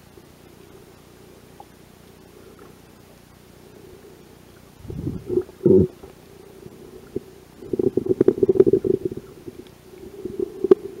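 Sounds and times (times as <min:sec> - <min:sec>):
underwater rumbles: 0:04.6 - 0:11.0.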